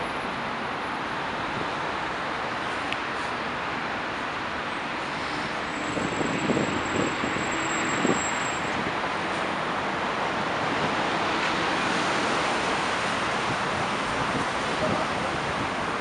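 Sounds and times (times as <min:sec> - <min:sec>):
car engines: 0:00.0 - 0:16.0
tyres hissing on wet pavement: 0:04.9 - 0:06.5.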